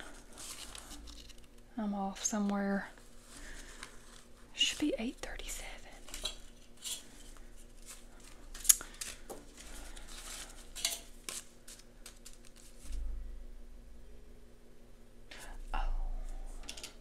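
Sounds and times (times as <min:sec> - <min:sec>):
banknotes rustling: 0:00.0 - 0:01.6, 0:02.3 - 0:13.0.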